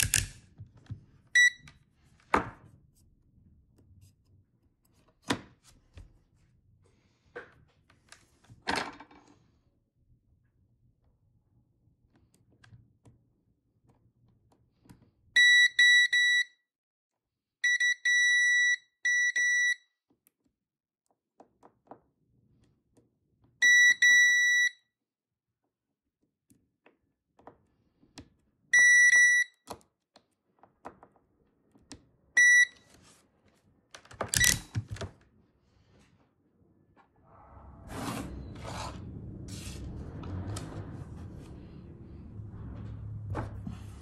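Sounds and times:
multimeter continuity beeps: 1.4s - 1.7s, 15.4s - 16.6s, 17.6s - 19.8s, 28.8s - 29.6s, 32.4s - 32.8s.

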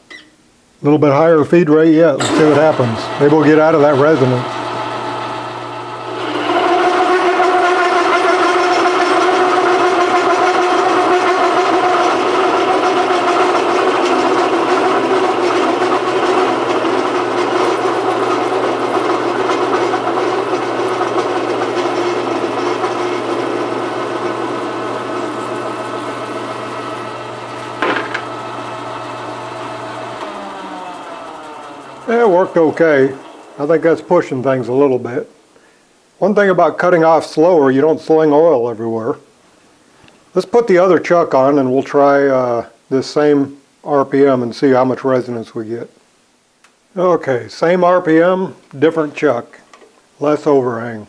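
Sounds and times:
lathe motor hum: 2.2s - 35.0s.

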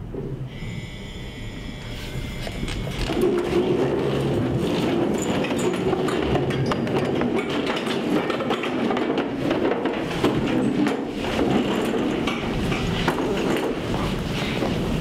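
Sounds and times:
chairs scraping and knocking: 2.6s - 15.0s
feet shuffling: 12.5s - 15.0s.

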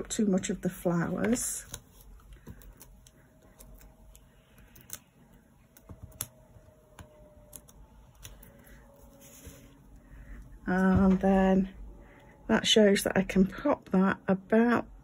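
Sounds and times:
fingertips clicking and tapping: 0.9s - 8.9s.

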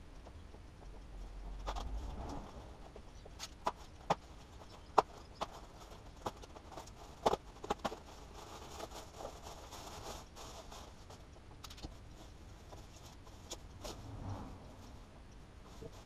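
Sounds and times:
foam and plastic bag rustling: 5.4s - 11.2s.

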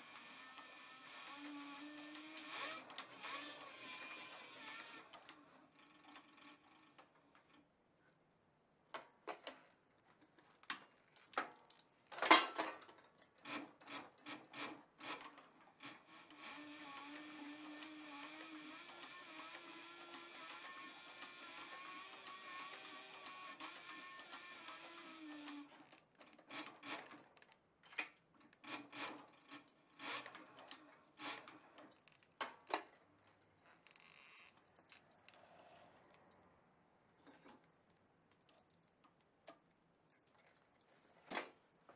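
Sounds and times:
sewing machine stitching leather: 0.0s - 7.3s, 13.4s - 32.9s
leather scraping under sewing machine: 0.2s - 6.2s.

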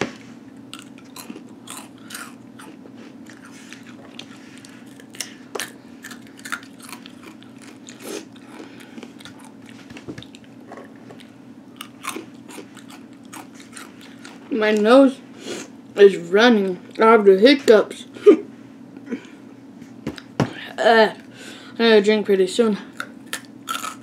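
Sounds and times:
steady low hum: 0.0s - 24.0s
crunching and chewing chips: 0.5s - 14.8s, 22.9s - 24.0s.

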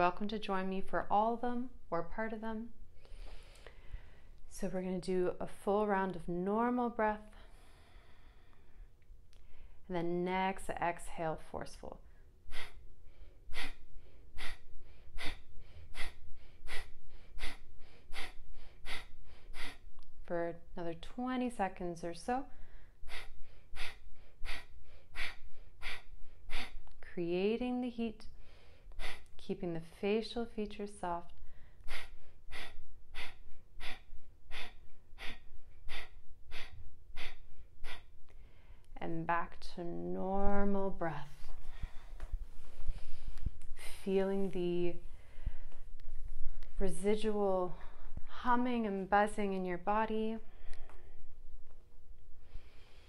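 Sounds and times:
soft inhales: 3.0s - 4.4s, 7.3s - 9.8s, 22.5s - 26.8s, 31.4s - 38.9s, 41.4s - 43.6s, 45.0s - 45.8s, 52.4s - 53.0s
woman forceful breathing exhales: 12.5s - 19.9s, 31.5s - 38.8s.

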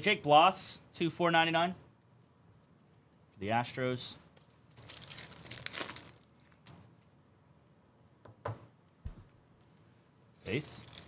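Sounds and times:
card packs crinkling: 4.3s - 6.8s, 10.5s - 11.0s.

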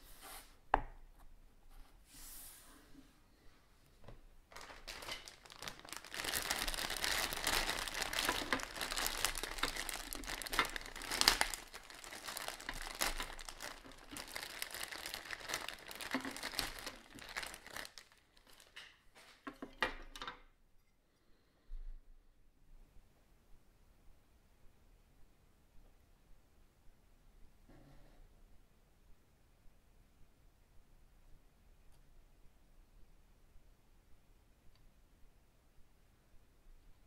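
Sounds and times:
plastic bag crinkling: 4.5s - 20.2s.

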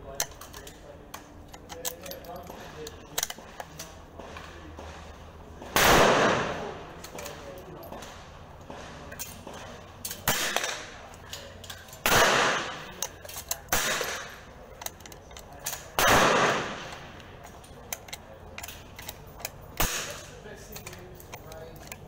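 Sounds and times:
rifle shots echoing: 4.4s - 7.0s, 8.0s - 11.0s, 12.0s - 13.0s, 13.7s - 14.4s, 15.8s - 17.2s, 19.7s - 20.4s
rifle action clicks: 10.0s - 22.0s.

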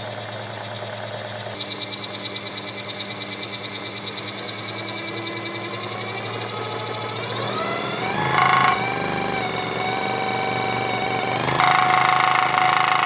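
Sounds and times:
scroll saw running: 0.8s - 13.0s.

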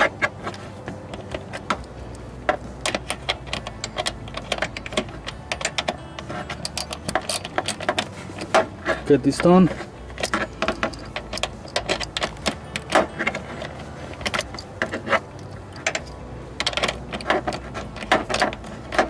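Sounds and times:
ratchet clicking: 0.5s - 8.7s, 9.3s - 19.0s.

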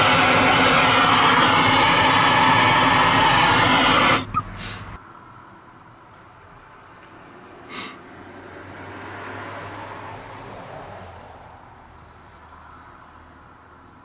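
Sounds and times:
vehicle passing: 7.2s - 11.8s.

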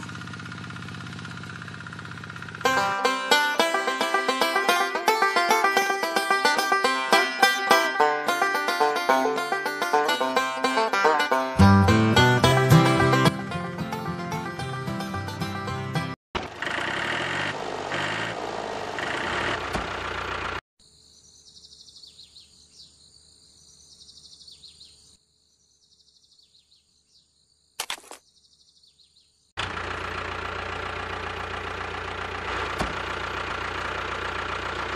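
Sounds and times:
model tractor engine running: 0.0s - 7.2s, 16.4s - 20.6s, 29.6s - 34.9s
quiet bird chirps: 21.0s - 29.5s.

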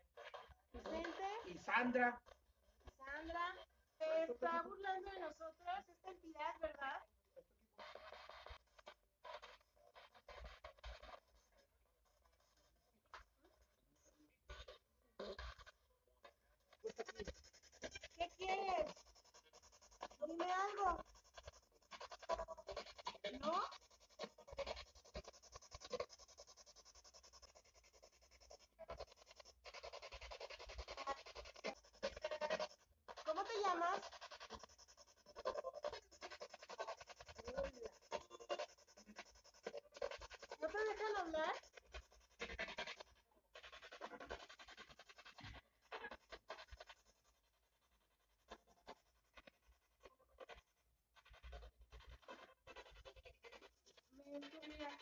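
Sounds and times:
faint rustles and scrapes: 0.0s - 55.0s.

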